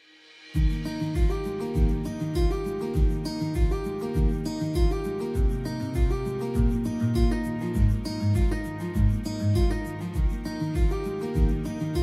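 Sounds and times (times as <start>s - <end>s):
background music with low beat: 0.6s - 12.0s.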